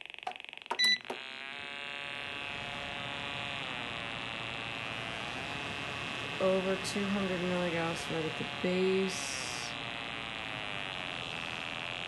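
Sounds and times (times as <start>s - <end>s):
heater electrical buzz: 0.0s - 12.0s
short electronic beep: 0.8s - 1.1s.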